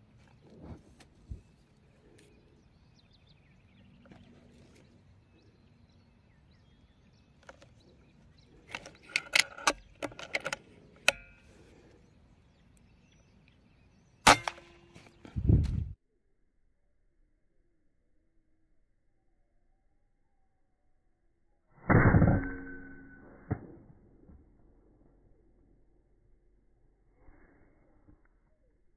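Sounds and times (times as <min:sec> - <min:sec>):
air rifle crack: 0:14.2 - 0:15.3.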